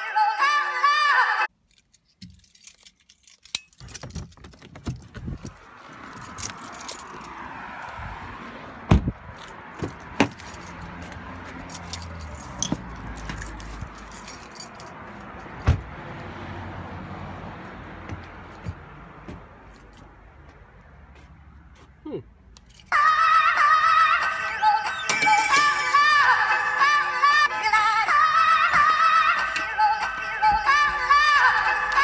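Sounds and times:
keys jangling: 1.6s - 7.4s, 9.4s - 15.6s, 22.6s - 22.9s
footsteps on wooden boards: 18.0s - 19.6s.

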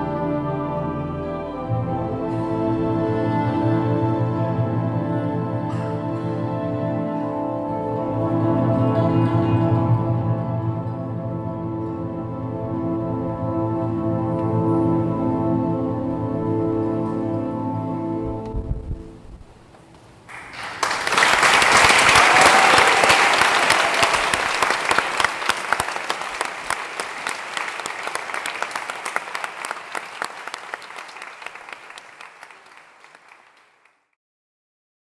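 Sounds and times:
audience applause: 20.3s - 34.1s.

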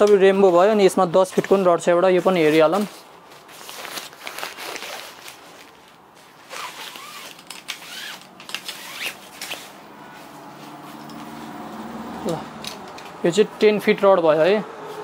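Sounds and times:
fabric rubbing along fishing rod: 2.4s - 11.6s.

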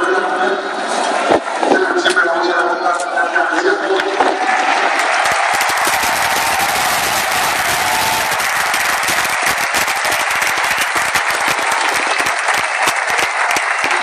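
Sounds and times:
crowd voices: 0.0s - 14.0s
crowd clapping: 3.8s - 14.0s.

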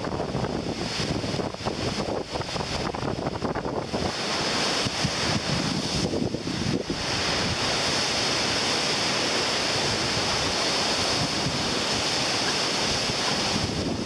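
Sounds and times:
rain: 0.0s - 14.0s
wind buffeting microphone: 0.0s - 14.0s
wind rushing through trees: 0.0s - 14.0s.

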